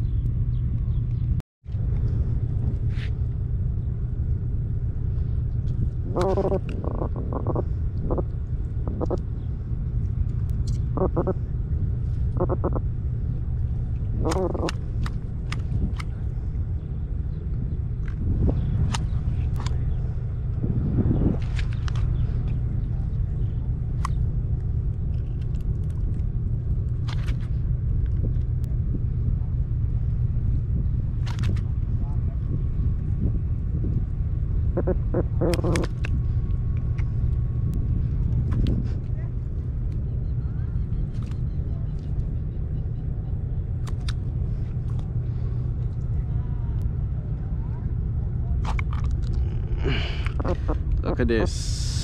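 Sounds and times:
wind rumble on microphone: 0:00.0 - 0:52.0
pulsed croaks: 0:05.9 - 0:09.6, 0:10.8 - 0:13.2, 0:14.0 - 0:15.9, 0:34.6 - 0:37.0, 0:48.9 - 0:51.3.

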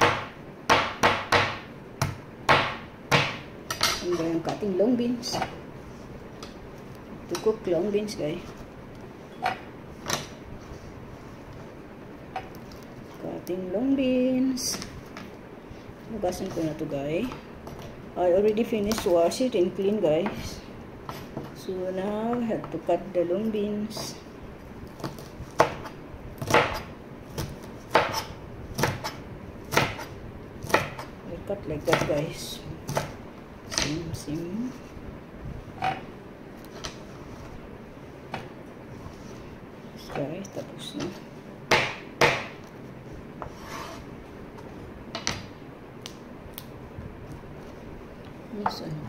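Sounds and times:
knife chopping on cutting board: 0:00.0 - 0:04.1, 0:25.0 - 0:31.1, 0:41.7 - 0:42.6.

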